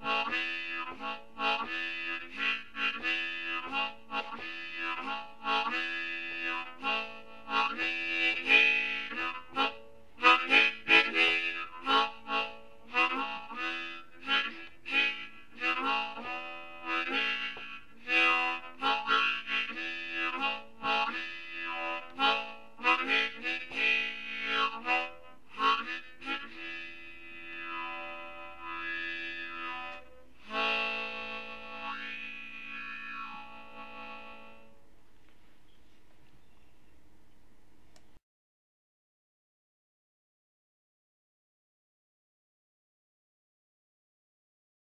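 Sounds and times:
harmonica improvisation: 0.0 - 34.9.

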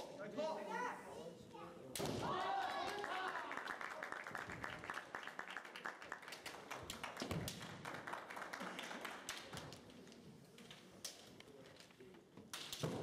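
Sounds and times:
spectators clapping: 2.2 - 10.0.

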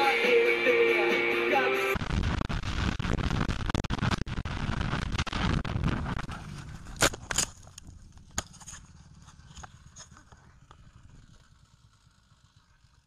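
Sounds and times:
road noise: 6.3 - 13.0.

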